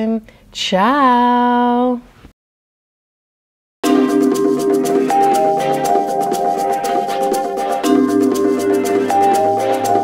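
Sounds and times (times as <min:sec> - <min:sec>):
fast ticking percussion beat: 0:03.8 - 0:10.0
sustained pitched notes: 0:03.8 - 0:10.0.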